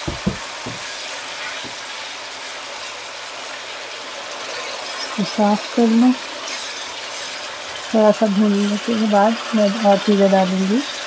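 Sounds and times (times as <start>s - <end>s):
spatula knocking against a pan: 0.0s - 0.9s
masala sizzling in a wok: 0.0s - 11.0s.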